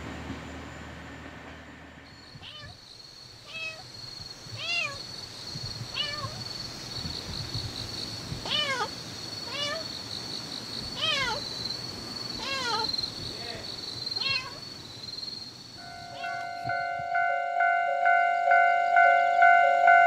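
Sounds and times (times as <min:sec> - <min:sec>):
cat meowing: 0:02.4 - 0:02.8, 0:03.4 - 0:03.9, 0:04.6 - 0:05.0, 0:05.9 - 0:06.4, 0:08.4 - 0:08.9, 0:09.5 - 0:09.9, 0:11.0 - 0:11.5, 0:12.4 - 0:12.9, 0:14.2 - 0:14.6, 0:16.0 - 0:16.7.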